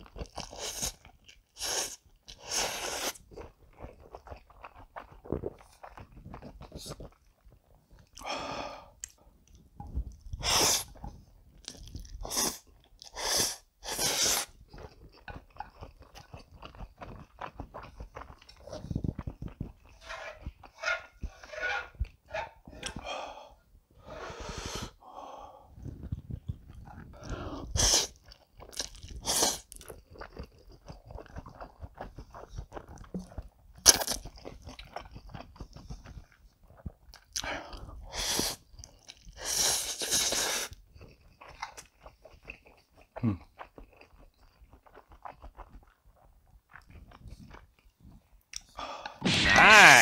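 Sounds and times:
wet chewing smacks: 0.0s - 8.3s, 9.0s - 13.2s, 14.4s - 20.8s, 25.8s - 49.2s
noodle slurping: 0.2s - 7.2s, 10.3s - 22.0s, 25.8s - 35.0s, 36.8s - 40.8s.

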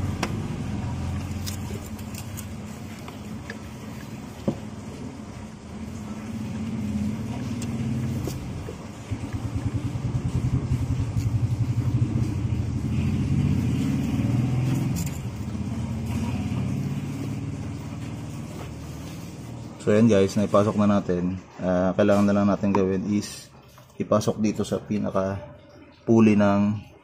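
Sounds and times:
vehicle engine running: 0.0s - 21.2s.

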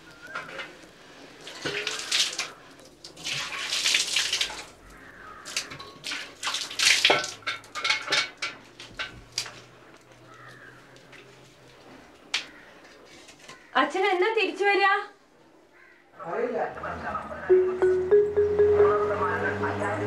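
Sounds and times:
water pouring and splashing: 0.5s - 4.8s, 5.4s - 9.7s
metal pots and dishes clattering: 7.1s - 9.3s.

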